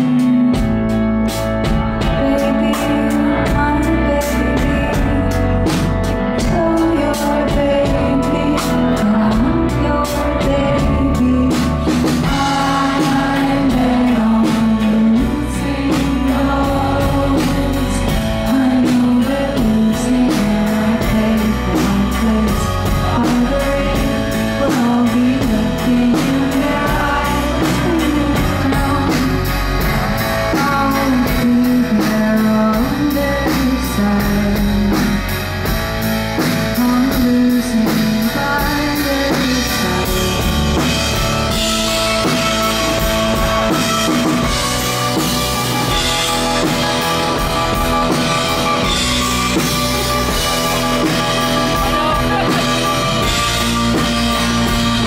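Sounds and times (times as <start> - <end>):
woman singing: 0.0 - 1.0, 2.0 - 35.4, 36.4 - 43.0
drums steady beat: 0.0 - 55.0
rock band playing: 0.0 - 55.0.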